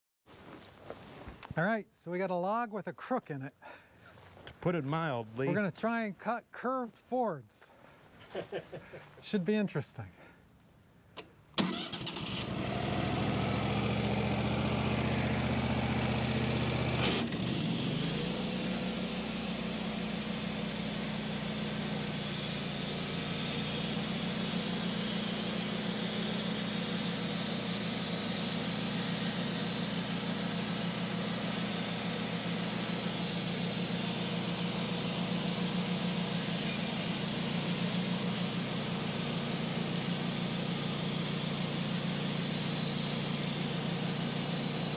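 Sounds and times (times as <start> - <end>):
sawmill engine starting and idling: 11.2 - 44.9
band blade hissing through log: 17.0 - 44.9.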